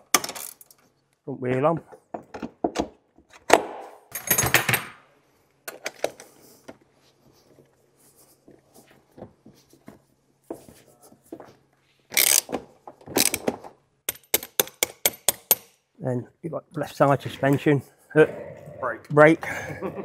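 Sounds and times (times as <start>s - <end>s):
clicks and knocks of handling tools: 5.7s - 6.8s
ratchet wrench clicking: 12.2s - 12.4s.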